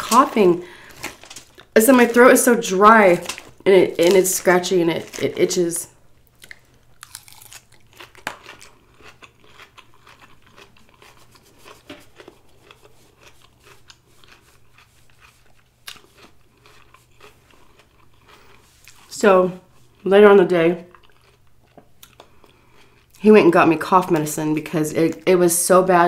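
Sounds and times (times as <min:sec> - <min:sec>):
chewing crunchy salad: 0:06.2 - 0:20.1, 0:20.8 - 0:23.2.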